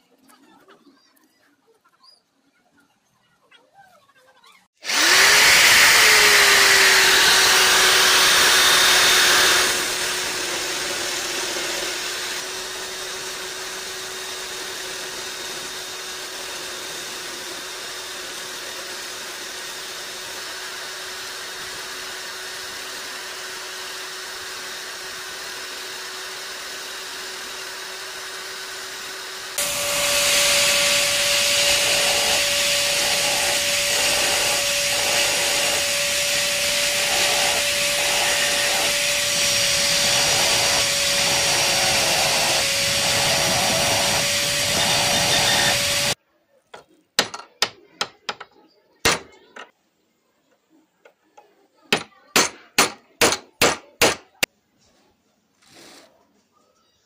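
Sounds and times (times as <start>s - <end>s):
electric power tool whining: 4.8s - 46.2s.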